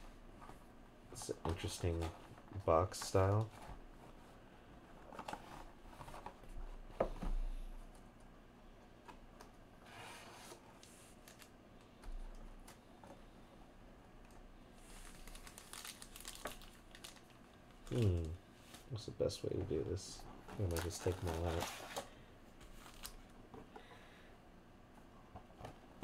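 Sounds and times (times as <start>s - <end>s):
cardboard box and foil packs rustling: 14.9s - 18.3s, 20.5s - 23.2s.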